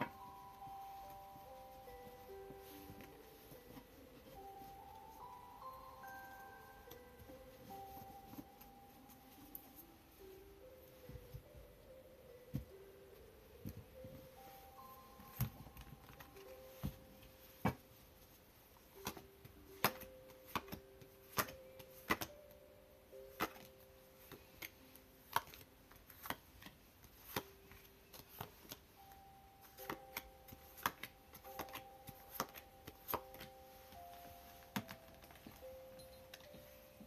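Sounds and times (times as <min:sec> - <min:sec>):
faint background music: 0:00.0 - 0:37.0
cards laid down with clicks: 0:19.0 - 0:22.4.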